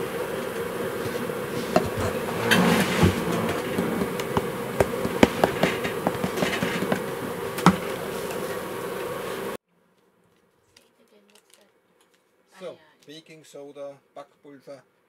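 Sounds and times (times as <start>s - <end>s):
steady buzzing hum: 0.0s - 9.6s
flour pouring: 0.9s - 8.3s.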